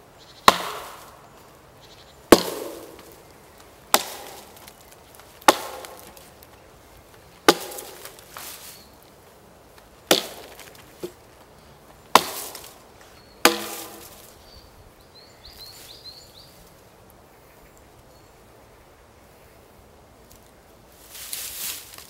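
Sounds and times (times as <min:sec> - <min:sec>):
axe chopping a branch: 0:00.5 - 0:01.2, 0:02.3 - 0:03.3, 0:03.9 - 0:06.6, 0:07.4 - 0:08.7, 0:09.8 - 0:11.2, 0:12.0 - 0:12.8, 0:13.4 - 0:14.3.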